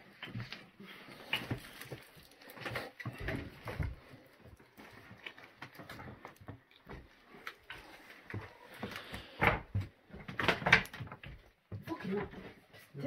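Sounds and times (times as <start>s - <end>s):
footsteps crunching on rubble: 0.0s - 10.4s.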